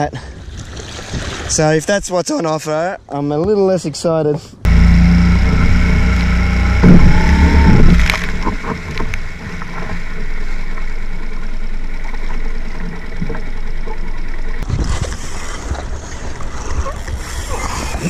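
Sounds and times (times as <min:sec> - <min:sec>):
water slapping against hull: 0:00.4 - 0:01.8, 0:05.0 - 0:18.0
outboard motor running: 0:04.6 - 0:18.0.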